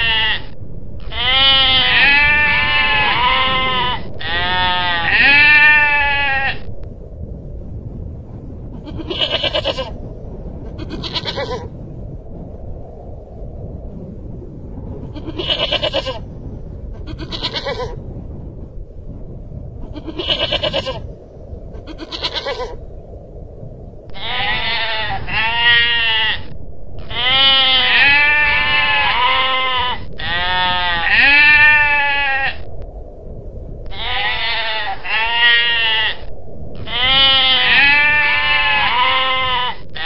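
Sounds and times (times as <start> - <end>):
goral bleats: 0.0 - 6.7, 8.8 - 10.0, 10.8 - 11.7, 15.1 - 16.2, 17.0 - 18.0, 19.9 - 21.0, 21.8 - 22.8, 24.2 - 32.7, 33.9 - 40.0.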